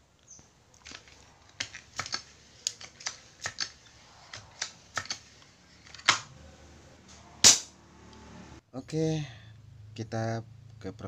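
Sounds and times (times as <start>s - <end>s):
gun parts clicking and knocking: 0.7s - 6.3s
loud gun snaps: 7.4s - 7.7s.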